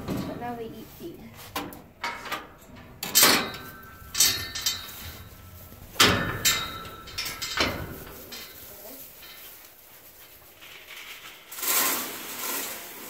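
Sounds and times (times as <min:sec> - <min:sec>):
metal gate clanking: 0:01.6 - 0:09.6.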